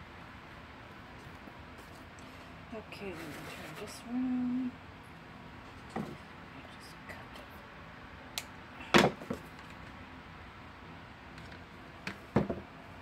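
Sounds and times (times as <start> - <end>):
craft tools knocking on tabletop: 12.3 - 12.6.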